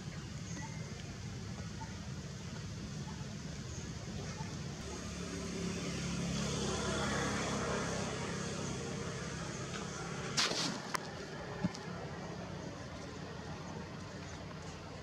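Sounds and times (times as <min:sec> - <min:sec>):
motor vehicle passing: 0:04.8 - 0:11.3
short sharp crackle: 0:10.4 - 0:11.0.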